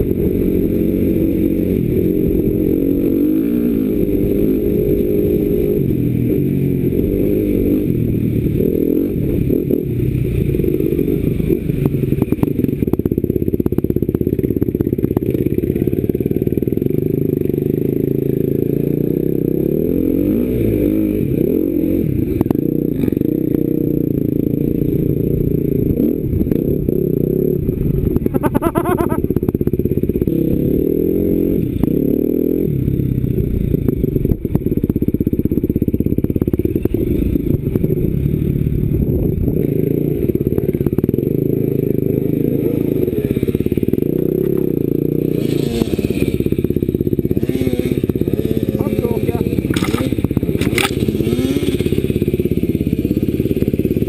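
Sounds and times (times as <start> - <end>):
dirt bike engine revving: 0.0 - 34.3, 35.5 - 54.0
bike knocking and clattering: 49.6 - 51.1.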